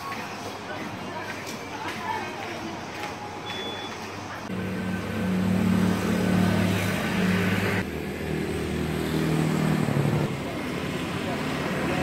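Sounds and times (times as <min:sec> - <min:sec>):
traffic engine hum: 0:04.3 - 0:12.0.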